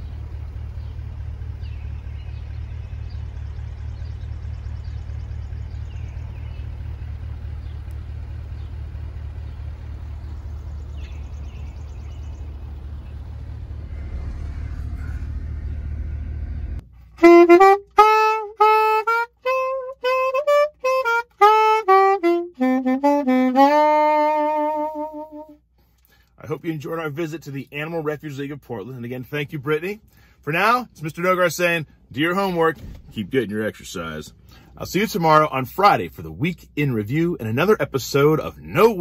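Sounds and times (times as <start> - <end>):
car interior rumble: 0.0 - 39.0
soprano saxophone melody: 17.0 - 25.6.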